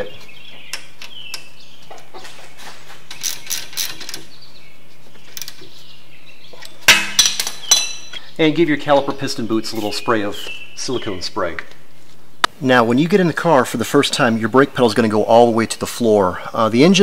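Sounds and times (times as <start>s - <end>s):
socket wrench ratcheting: 3.2s - 4.2s.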